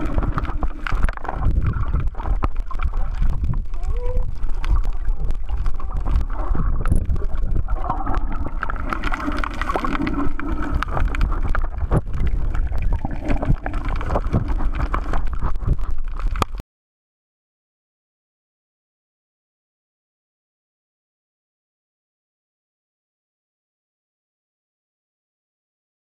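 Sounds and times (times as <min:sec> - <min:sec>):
small underwater clicks and crackles: 0:00.0 - 0:16.6
underwater rumble of moving water: 0:00.0 - 0:16.6.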